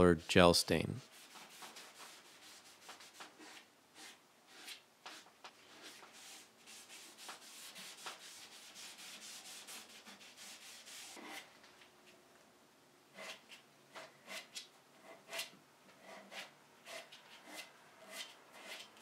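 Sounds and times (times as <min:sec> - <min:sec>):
gloved hand rubbing wood: 0:01.0 - 0:11.5.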